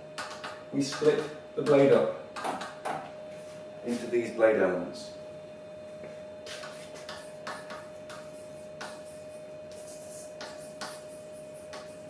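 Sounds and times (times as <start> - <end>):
chalk scratching on blackboard: 6.5 - 12.0.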